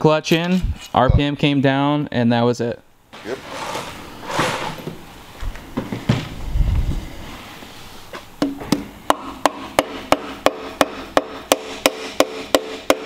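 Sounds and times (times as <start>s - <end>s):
hammer tapping on metal: 8.4s - 13.0s.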